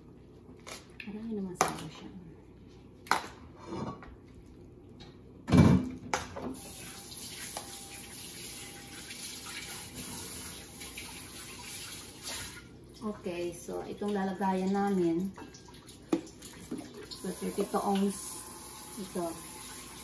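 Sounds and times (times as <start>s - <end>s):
kitchen tap running into sink: 6.6s - 12.7s, 13.7s - 20.0s.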